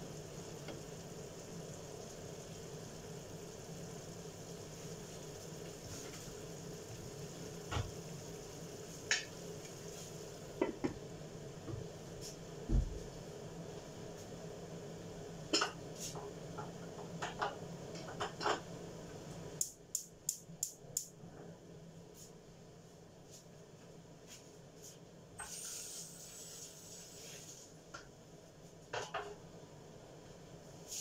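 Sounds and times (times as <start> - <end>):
brief hiss: 25.4 - 27.6.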